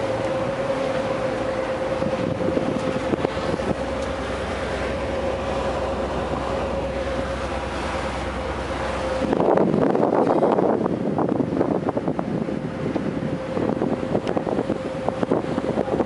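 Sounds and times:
boat engine humming: 0:00.0 - 0:16.0
water noise: 0:00.0 - 0:16.0
wind buffeting microphone: 0:00.0 - 0:16.0.

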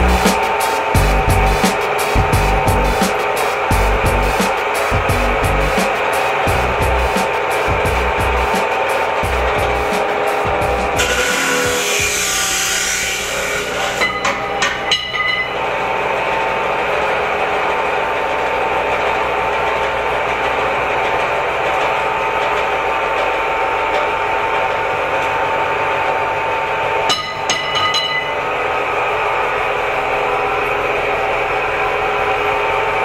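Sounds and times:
chop saw motor running: 0:00.0 - 0:14.9.

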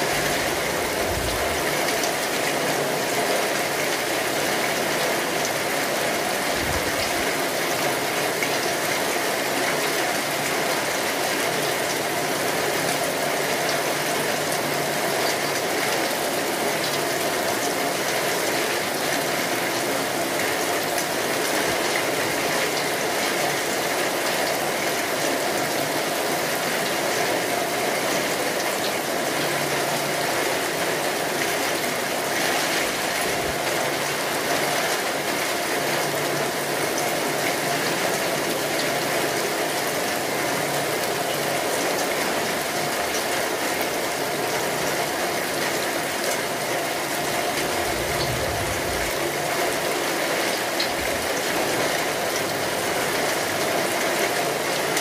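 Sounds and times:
steady rain falling: 0:00.0 - 0:55.0.

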